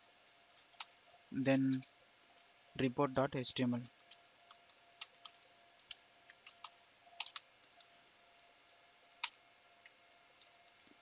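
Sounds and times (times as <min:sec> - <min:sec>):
computer keyboard keystrokes: 0:04.5 - 0:07.5, 0:09.2 - 0:09.4.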